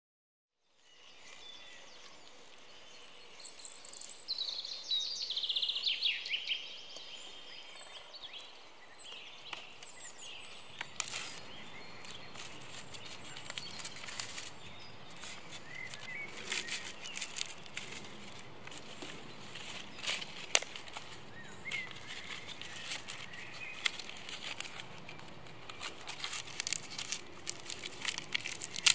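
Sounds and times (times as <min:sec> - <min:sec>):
birds chirping and trilling: 0:00.6 - 0:28.9
outdoor background noise: 0:00.6 - 0:28.9.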